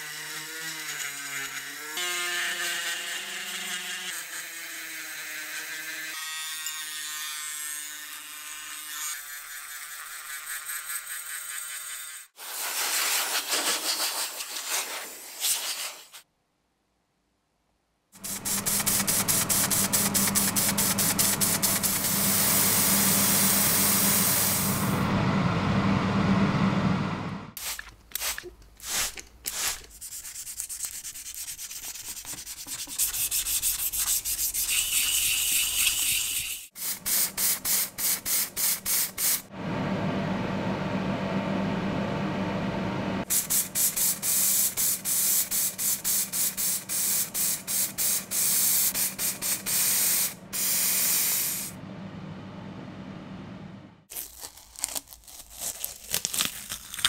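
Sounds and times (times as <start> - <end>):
sandpaper scraping sheet metal: 8.8 - 16.2, 18.2 - 24.8, 27.6 - 39.5, 43.3 - 51.8.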